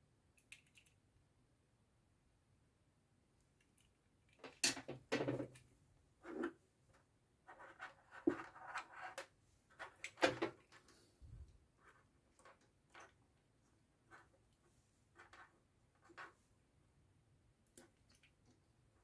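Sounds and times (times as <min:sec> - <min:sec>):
plastic parts clicking and knocking: 0:03.6 - 0:05.7, 0:07.5 - 0:11.0.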